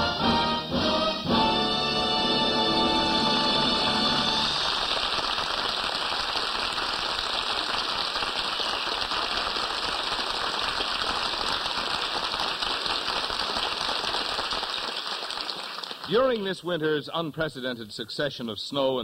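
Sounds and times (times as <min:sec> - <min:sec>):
studio audience applauding: 0:03.3 - 0:16.4.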